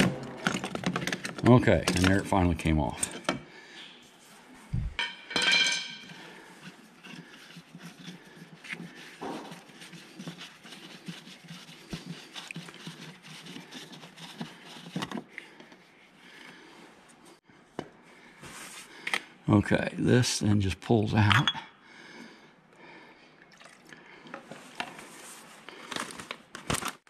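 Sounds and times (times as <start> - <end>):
light plastic rustling: 24.4 - 27.0.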